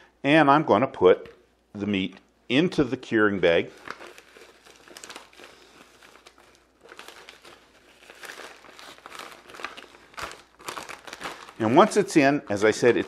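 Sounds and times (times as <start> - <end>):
plastic bag crinkling: 3.5 - 13.0.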